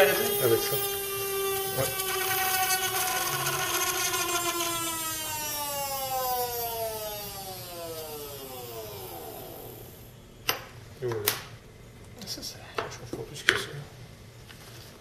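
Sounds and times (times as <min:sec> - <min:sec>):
gyroscope rotor whining: 0:00.0 - 0:10.1.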